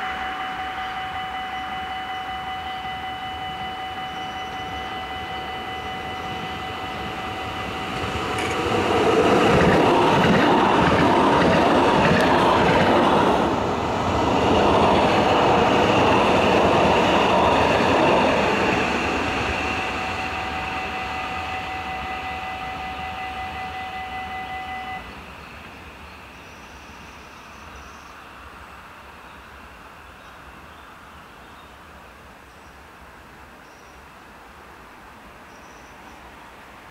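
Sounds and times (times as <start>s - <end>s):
tram wheels rumbling on rails: 0.0s - 25.0s
steady high whine: 0.0s - 25.4s.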